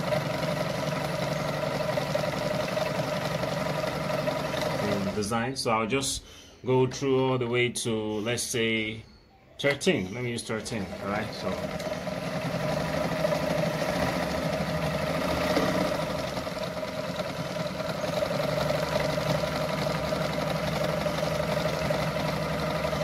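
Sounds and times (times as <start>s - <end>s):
sewing machine running: 0.0s - 5.5s, 10.4s - 23.0s.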